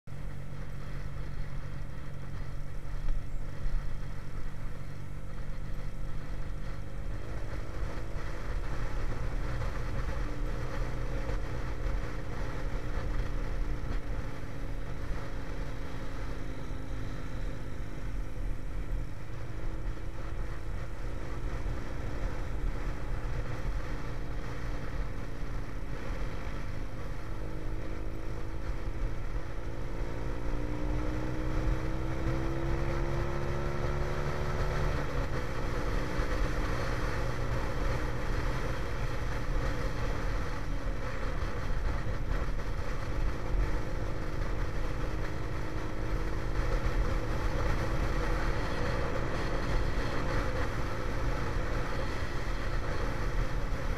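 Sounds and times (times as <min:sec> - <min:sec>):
wind and road rumble: 0:00.0 - 0:53.9
motorcycle engine running: 0:00.1 - 0:53.9.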